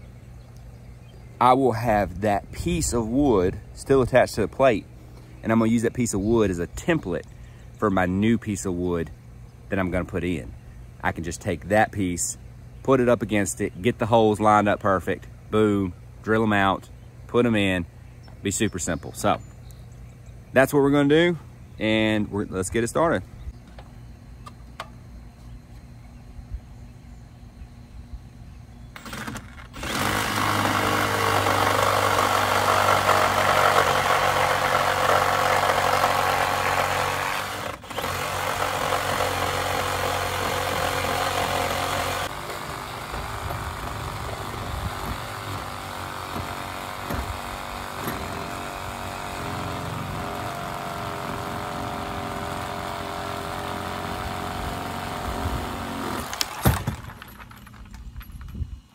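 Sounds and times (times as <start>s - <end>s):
reciprocating saw cutting wood: 29.0s - 56.6s.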